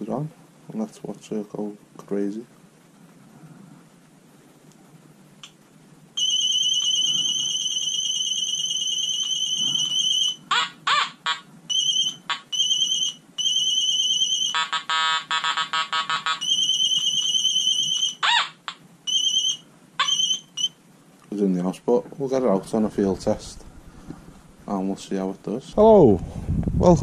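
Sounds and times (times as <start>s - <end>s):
metal detector rising chirps: 6.2s - 18.5s, 19.1s - 20.8s
metal detector beeping: 6.2s - 20.8s
buzzy tone: 6.8s - 20.8s.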